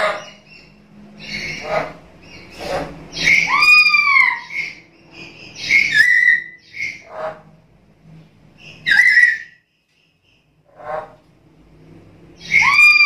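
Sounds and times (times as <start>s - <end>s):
parrot whistled calls: 3.1s - 4.8s, 5.4s - 7.0s, 8.8s - 9.6s, 12.4s - 13.0s.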